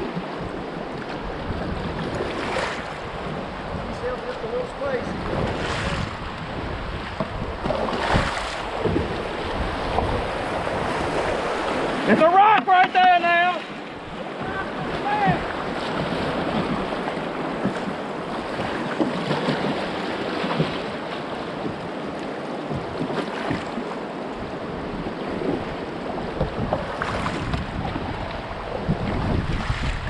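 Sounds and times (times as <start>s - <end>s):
wind buffeting microphone: 0.0s - 12.1s, 14.0s - 30.0s
fast river current rushing: 0.0s - 30.0s
paddle blades splashing: 0.0s - 30.0s.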